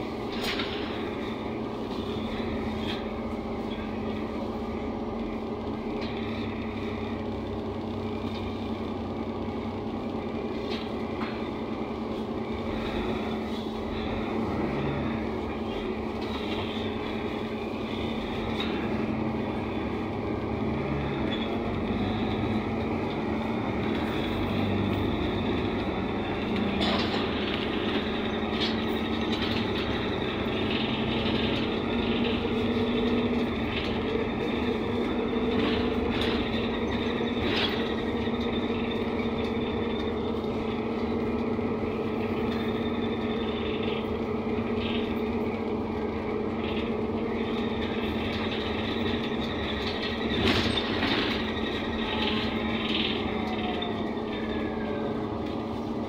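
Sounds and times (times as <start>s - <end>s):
bus engine hum: 0.0s - 56.0s
road noise: 0.0s - 56.0s
bus body knocks and rattles: 22.8s - 41.2s, 46.5s - 53.9s.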